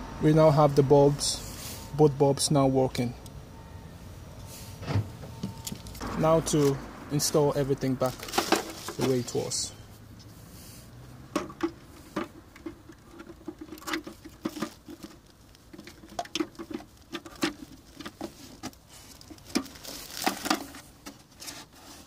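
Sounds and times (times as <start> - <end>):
hard plastic clicking and rubbing: 11.4 - 22.0.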